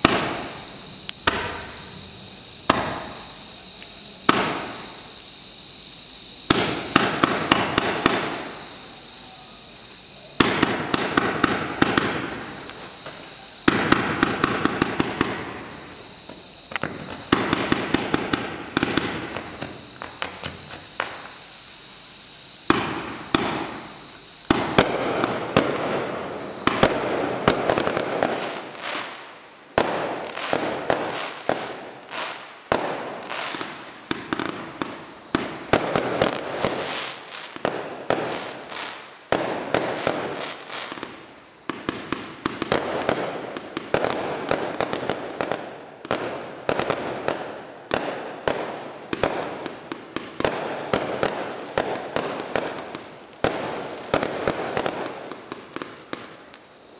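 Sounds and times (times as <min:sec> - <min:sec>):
firework launch shots and bursts: 0:00.0 - 0:01.9, 0:02.6 - 0:03.3, 0:04.2 - 0:04.9, 0:06.5 - 0:08.6, 0:10.4 - 0:16.0, 0:16.7 - 0:21.3, 0:22.7 - 0:38.7
firework hiss: 0:00.0 - 0:56.9.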